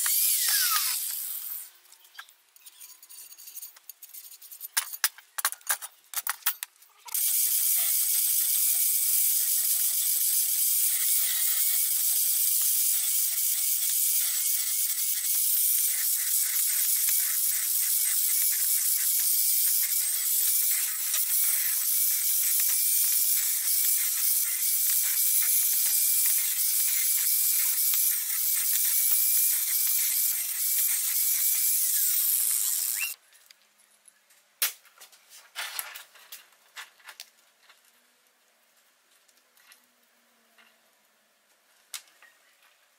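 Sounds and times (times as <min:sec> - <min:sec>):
angle grinder grinding steel: 0:00.0 - 0:01.8, 0:07.1 - 0:33.2.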